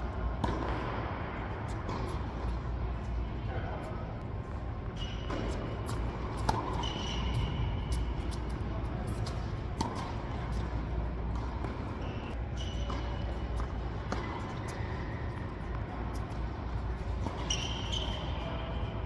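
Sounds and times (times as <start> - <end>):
steady low hum: 0.0 - 19.0
ball bouncing: 0.3 - 2.6, 5.0 - 18.2
racket hitting ball: 0.4 - 2.6, 5.3 - 12.0, 12.7 - 18.2
shoes squeaking on court: 0.4 - 19.0.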